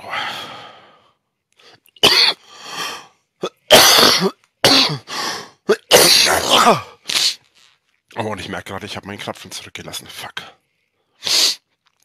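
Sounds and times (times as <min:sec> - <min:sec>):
soft breaths: 0:00.0 - 0:03.3
man coughing hard: 0:02.0 - 0:02.4, 0:03.4 - 0:05.1, 0:05.7 - 0:06.9.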